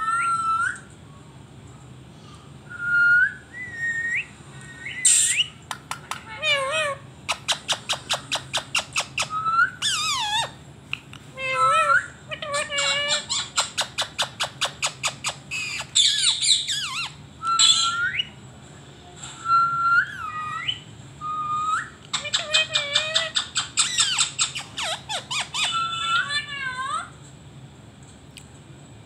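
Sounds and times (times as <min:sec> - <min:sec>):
parakeet chattering and squawking: 0:04.7 - 0:18.4, 0:19.5 - 0:27.1.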